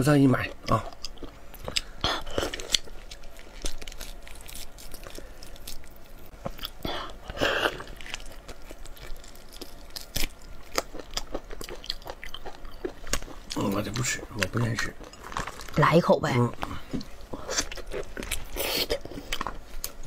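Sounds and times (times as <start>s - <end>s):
wet chewing: 0.4s - 15.9s.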